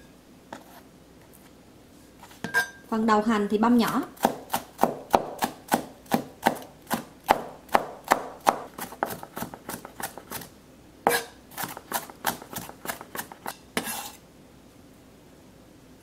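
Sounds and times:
knife chopping on plastic board: 0:03.8 - 0:10.5, 0:11.1 - 0:14.0.

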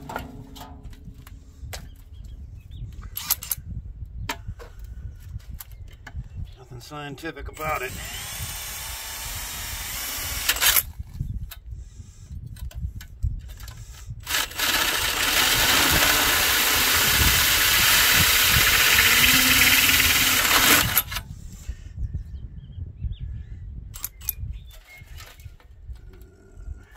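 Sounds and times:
drill with hole saw cutting steel: 0:07.6 - 0:10.8, 0:14.2 - 0:21.2.

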